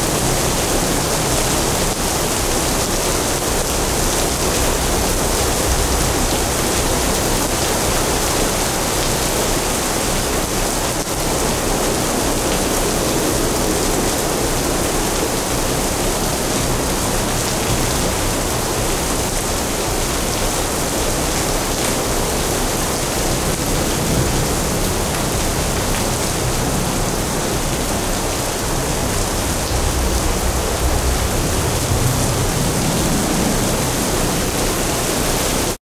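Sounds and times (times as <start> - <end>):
heavy rain: 0.0 - 35.8
low rumble: 28.9 - 34.4.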